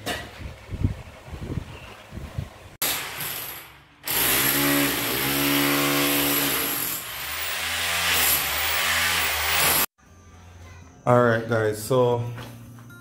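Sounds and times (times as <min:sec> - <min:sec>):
demolition hammer chipping tiles: 0:02.8 - 0:09.9.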